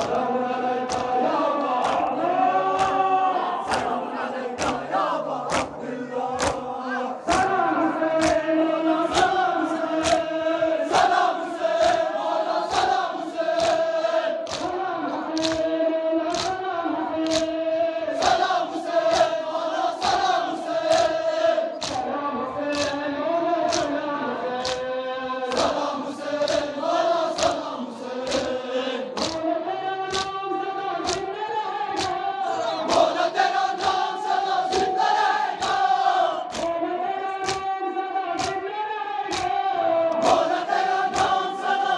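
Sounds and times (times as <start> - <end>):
crowd chanting a lament: 0.0 - 41.9.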